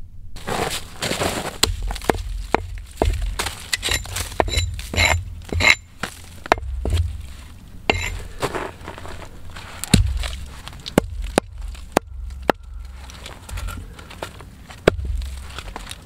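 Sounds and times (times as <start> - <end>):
hatchet chopping wood: 1.6 - 5.8, 6.5 - 7.2, 9.9 - 13.6, 14.8 - 15.9
low rumble: 1.7 - 8.4, 9.4 - 16.0.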